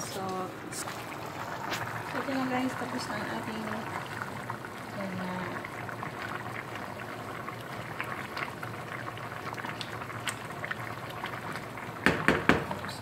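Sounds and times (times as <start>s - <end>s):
thick sauce bubbling in a pot: 0.1s - 13.0s.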